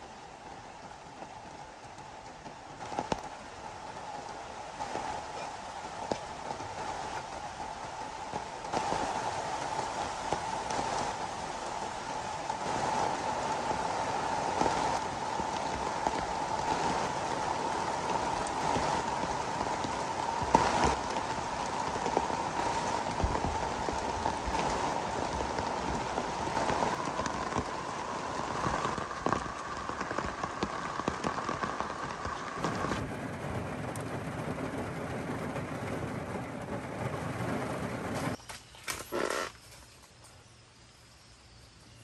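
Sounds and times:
rain drumming on a car: 0.0 - 38.4
sharp raindrop taps: 0.0 - 38.7
heavy rain on grass and tent: 0.0 - 42.0.

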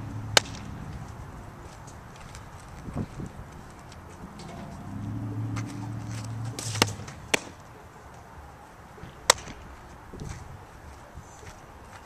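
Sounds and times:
low steady hum: 0.0 - 8.7.

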